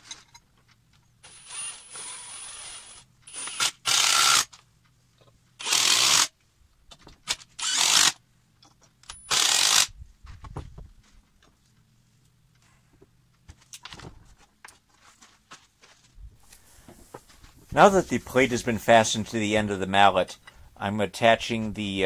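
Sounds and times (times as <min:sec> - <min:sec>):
impact driver driving screws: 0:01.2 - 0:04.6, 0:05.6 - 0:06.3, 0:07.2 - 0:08.2, 0:09.0 - 0:09.9.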